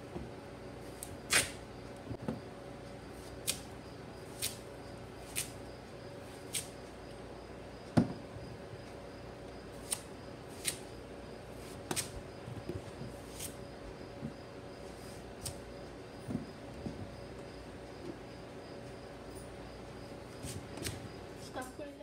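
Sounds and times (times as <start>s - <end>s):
knife cutting pumpkin: 0.8s - 1.6s, 3.2s - 3.7s, 4.3s - 5.6s, 6.3s - 6.8s, 9.7s - 11.0s, 11.6s - 12.2s, 13.1s - 13.6s, 15.1s - 15.6s.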